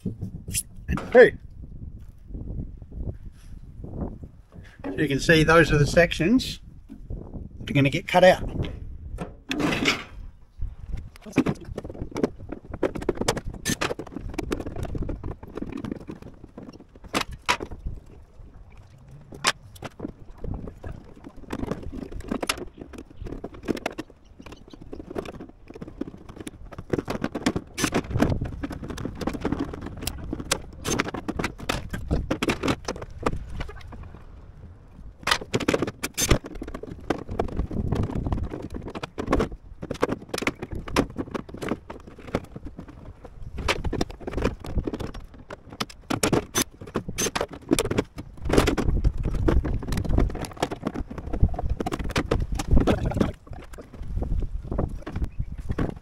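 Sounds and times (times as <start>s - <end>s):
metal box rattling: 11.2s - 18.1s, 19.3s - 34.0s, 35.2s - 53.9s.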